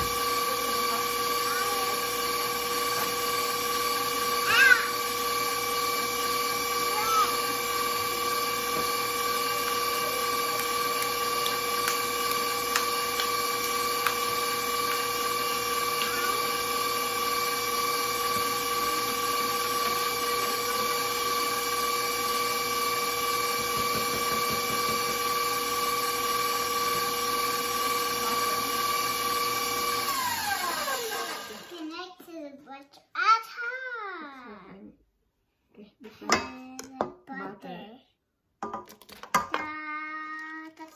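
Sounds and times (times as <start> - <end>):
electric stand mixer whine: 0.0 - 31.9.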